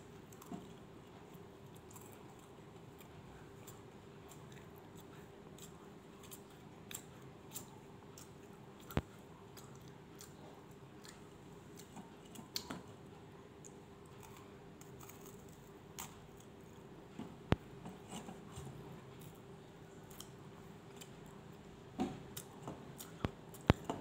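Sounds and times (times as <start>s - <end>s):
faint steady hum: 0.0s - 24.0s
crackers crunching: 13.7s - 16.6s.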